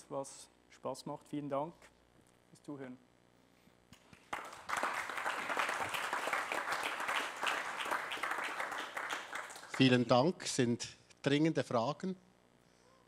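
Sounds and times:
audience applause: 0:04.2 - 0:10.1.

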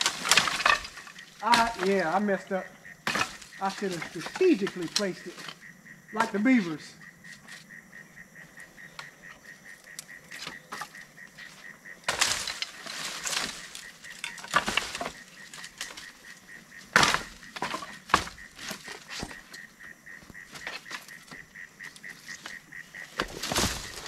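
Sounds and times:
dry sticks crackling and snapping: 0:00.0 - 0:02.3, 0:03.0 - 0:05.6, 0:09.8 - 0:11.0, 0:12.0 - 0:24.0
brush rustling: 0:00.0 - 0:07.8, 0:09.8 - 0:24.0.

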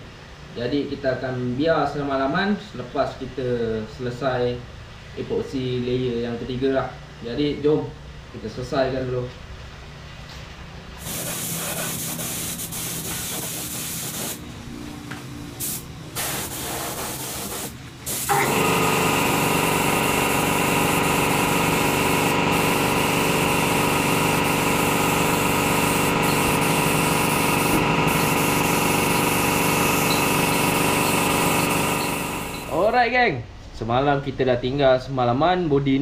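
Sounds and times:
steady motor hum: 0:10.9 - 0:33.0
paint spray gun hissing: 0:11.0 - 0:14.5, 0:15.5 - 0:32.9.

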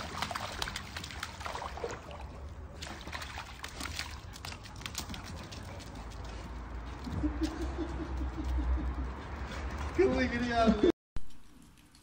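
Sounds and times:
puppy splashing through water: 0:00.0 - 0:08.3.

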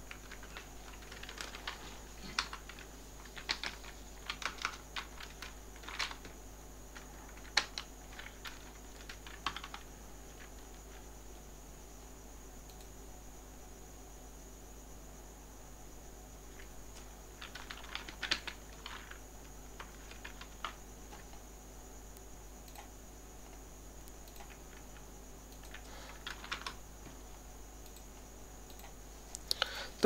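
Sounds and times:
typing on computer keyboard: 0:00.0 - 0:10.8, 0:17.4 - 0:21.4, 0:24.2 - 0:26.8.

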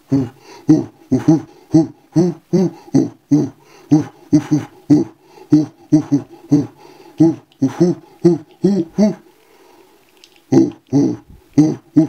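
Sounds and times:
person singing rhythmic syllables: 0:00.0 - 0:09.3, 0:10.4 - 0:12.0.

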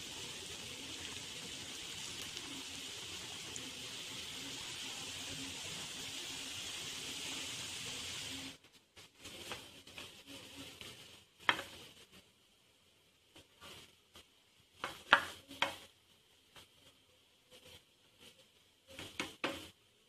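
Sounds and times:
batter sizzling in oil: 0:00.0 - 0:12.0.

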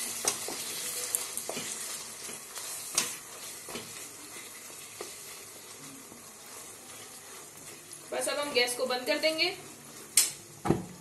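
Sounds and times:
spatula scraping a pan: 0:00.0 - 0:07.8
sauce sizzling in hot oil: 0:00.0 - 0:11.0.

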